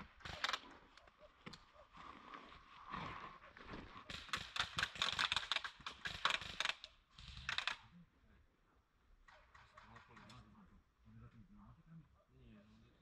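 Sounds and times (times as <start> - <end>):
crackling and rustling clicks: 0.2 - 1.7, 4.1 - 7.8.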